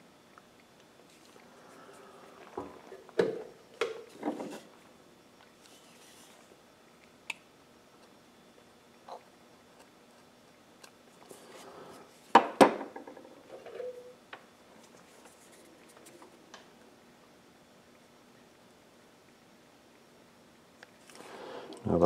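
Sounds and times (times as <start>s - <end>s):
knocks on wooden workbench: 12.4s - 13.2s.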